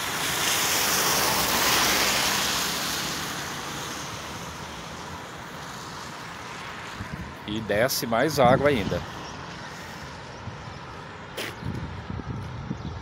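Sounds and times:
car tyres hissing on wet road: 0.0s - 7.0s.

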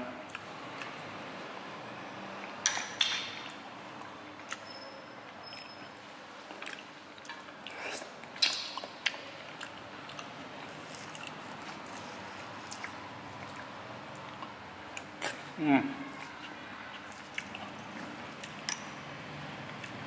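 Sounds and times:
person chewing noodles: 0.3s - 1.1s, 6.5s - 19.0s, 19.6s - 20.0s.

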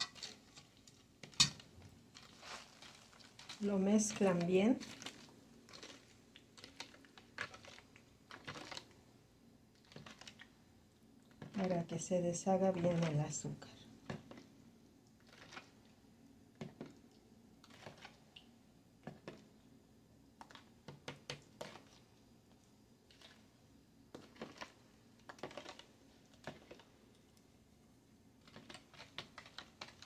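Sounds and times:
plastic spoon scraping pitcher: 2.2s - 9.0s, 15.2s - 15.8s, 17.6s - 18.2s, 20.4s - 22.0s, 24.1s - 26.9s.

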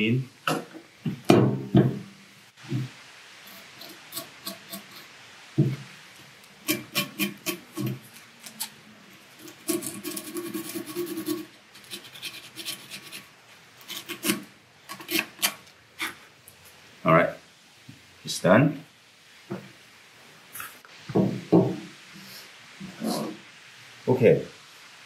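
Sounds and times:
sandpaper rubbing on metal pin: 6.7s - 8.0s, 9.4s - 16.2s.

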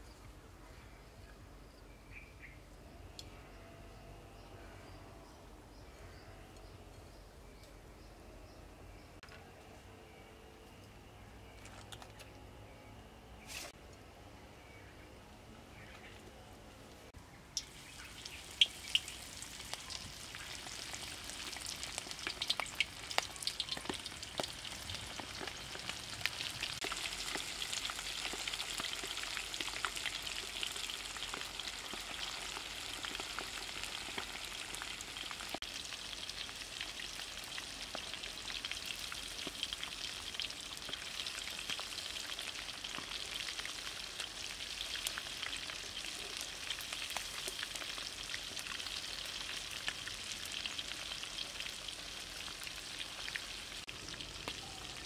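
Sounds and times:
food deep-frying in oil: 17.6s - 55.0s.

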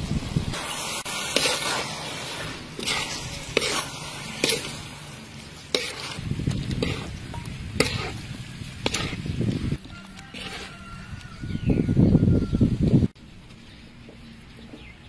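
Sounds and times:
food sizzling in a metal pan: 0.0s - 10.7s
spatula scraping and knocking pan: 2.8s - 4.9s, 5.6s - 8.2s, 8.8s - 9.3s, 10.1s - 10.8s.

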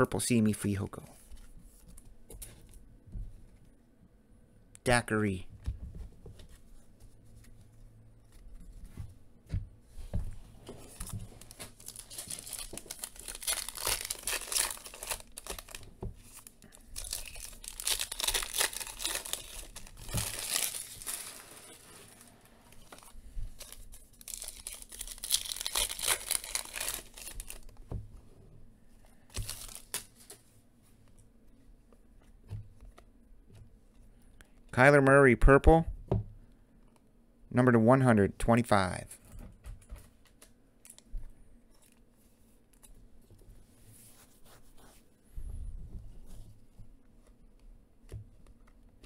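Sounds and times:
foil wrappers tearing and crinkling: 11.0s - 27.7s, 29.4s - 30.3s.

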